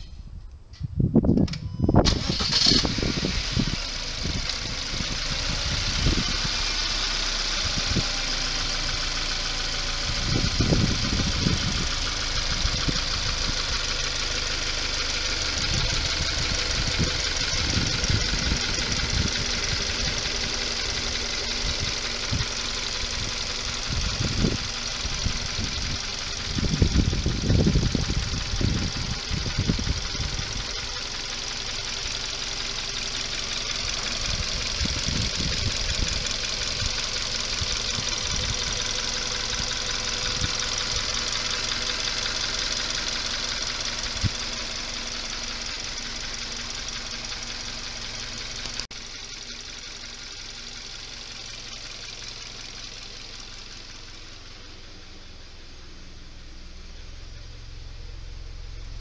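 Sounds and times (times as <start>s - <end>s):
car engine idling: 2.0s - 59.0s
bursts of low rumble: 2.8s - 14.7s, 15.3s - 48.8s.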